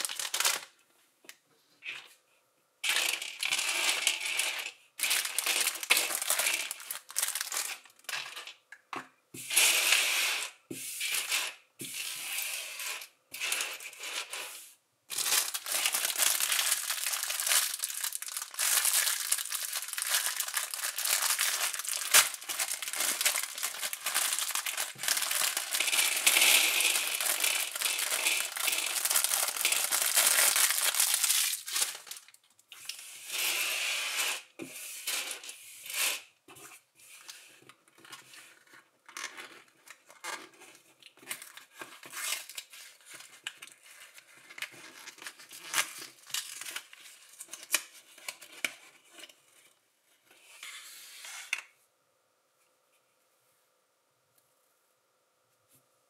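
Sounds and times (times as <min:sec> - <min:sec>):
plastic bag crinkling: 0:00.0 - 0:00.7, 0:02.9 - 0:08.5, 0:15.1 - 0:33.0
plastic bricks clattering: 0:02.8 - 0:08.6, 0:15.1 - 0:32.4.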